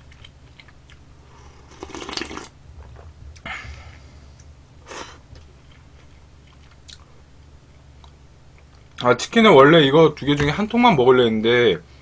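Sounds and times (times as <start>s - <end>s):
person slurping broth: 1.3s - 2.6s, 4.8s - 5.4s.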